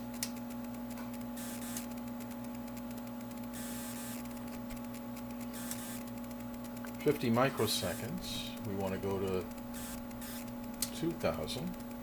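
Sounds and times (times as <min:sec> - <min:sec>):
electrical hum: 0:00.0 - 0:12.0
faint crackling buzz: 0:00.0 - 0:12.0.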